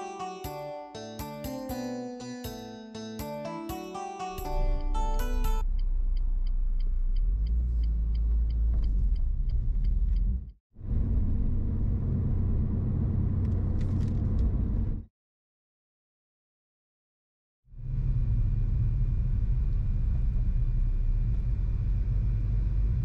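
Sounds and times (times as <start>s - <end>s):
car road and engine rumble: 5.2s - 15.1s, 17.8s - 23.0s
turn signal ticking: 5.6s - 10.6s.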